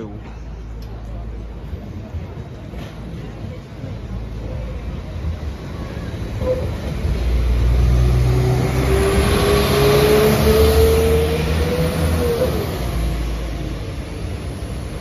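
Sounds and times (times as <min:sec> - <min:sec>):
diesel train passing: 0:00.0 - 0:15.0.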